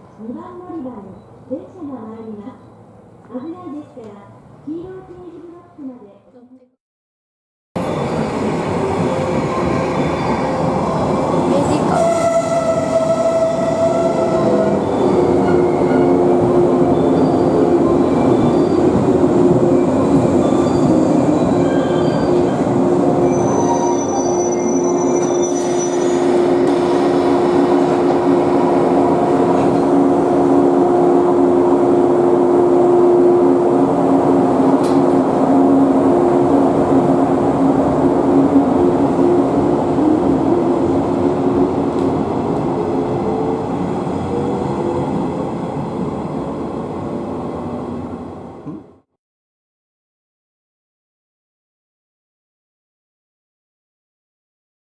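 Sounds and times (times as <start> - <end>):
train rolling rumble: 7.8 - 49.0.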